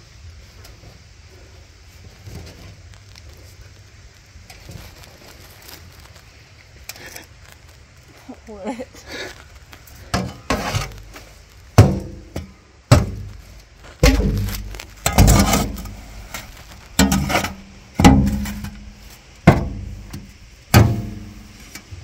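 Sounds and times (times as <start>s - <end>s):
shovel hitting metal wheelbarrow: 10.1s - 11.0s, 11.8s - 21.9s.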